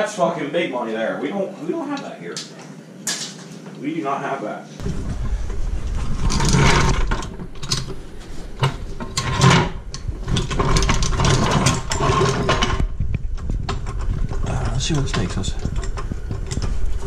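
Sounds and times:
floor jack clanking and clicking: 4.8s - 17.0s.

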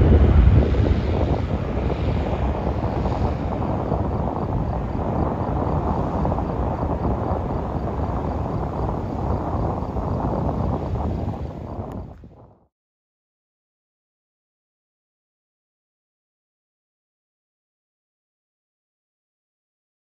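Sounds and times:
jet engines rumbling at takeoff: 0.0s - 12.7s.

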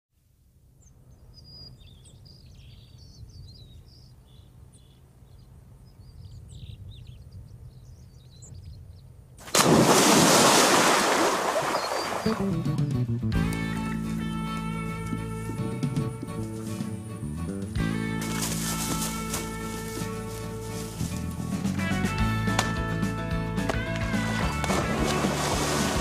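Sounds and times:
birds chirping: 0.8s - 9.4s, 11.5s - 12.6s, 13.5s - 21.6s
dog splashing in water: 9.4s - 12.5s, 24.1s - 26.0s.

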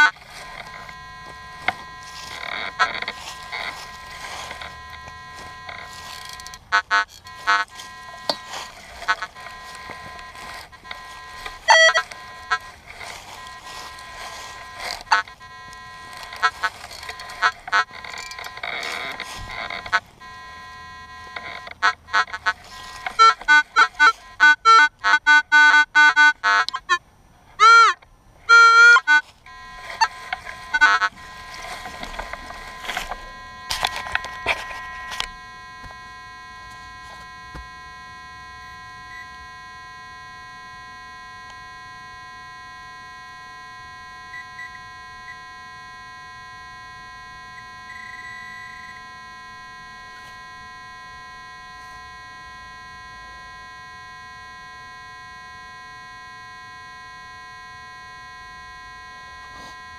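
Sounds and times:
digging soil scraping: 0.0s - 20.2s, 21.2s - 24.4s, 29.2s - 36.0s
metal detector warbling beeps: 0.0s - 27.0s, 27.6s - 59.9s
steady electronic buzzing tone: 0.0s - 59.9s.

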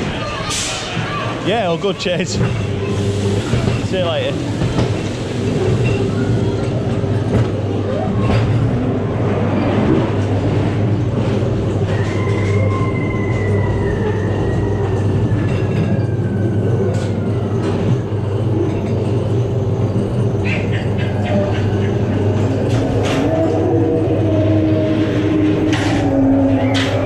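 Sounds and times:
ride car rumbling on track: 0.0s - 27.0s.

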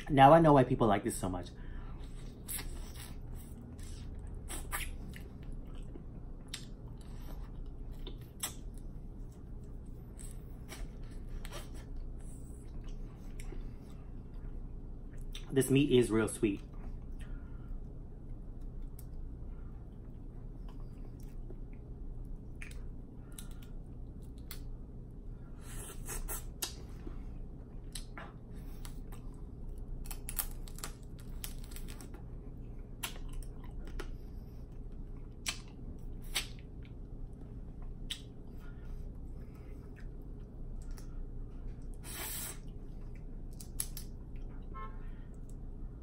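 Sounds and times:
quiet chewing: 25.6s - 44.5s.

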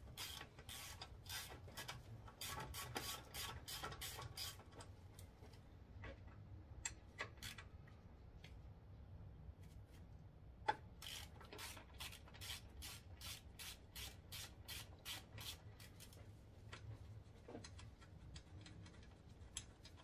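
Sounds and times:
hand ratchet clicking: 0.2s - 4.6s, 11.0s - 16.2s.

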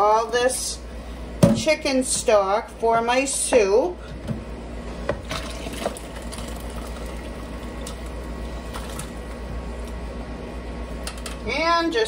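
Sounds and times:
broth pouring into colander: 5.3s - 9.4s.

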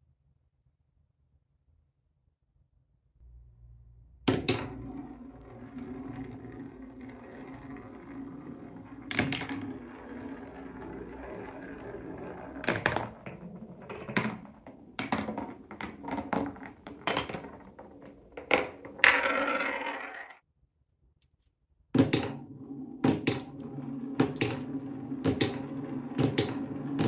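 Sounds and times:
marble knocking in wooden blocks: 4.3s - 20.4s, 22.0s - 27.0s
marble rolling on wooden track: 4.3s - 20.4s, 22.0s - 27.0s.

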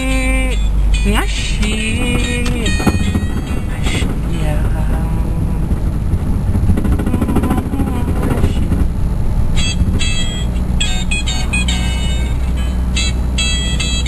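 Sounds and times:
car engine and road noise: 0.0s - 14.0s
high bright tones: 9.5s - 14.0s.

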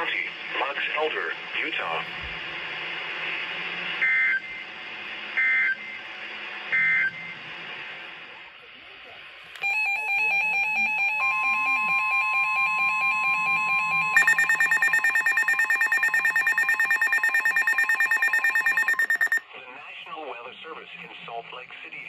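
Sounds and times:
high fast beeping alarm: 9.6s - 19.4s
rapid pulsing beeps: 9.6s - 19.4s
steady alarm tone: 9.6s - 19.4s.

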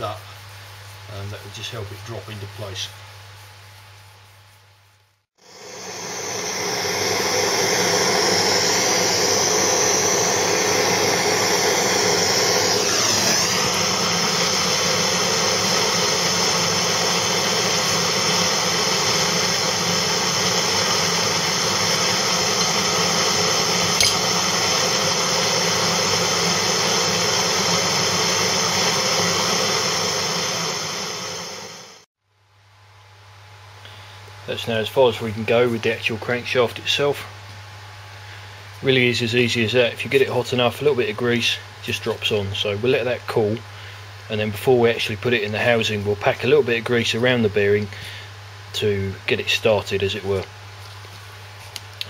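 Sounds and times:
power tool whirring: 5.4s - 32.1s.

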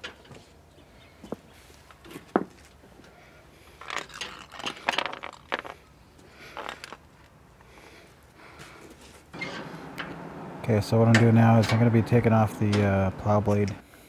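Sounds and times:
metal cable clinking on asphalt: 3.7s - 7.4s.

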